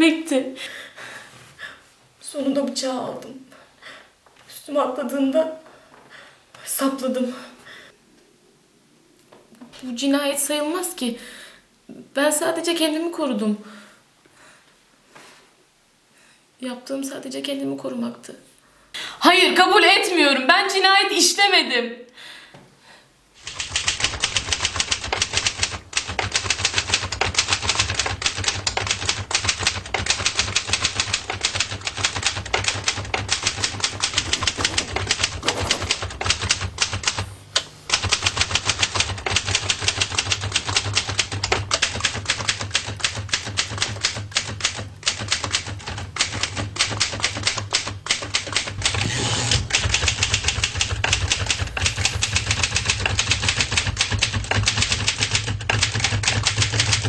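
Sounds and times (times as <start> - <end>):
typewriter typing fast: 23.4 - 37.3, 37.9 - 57.0.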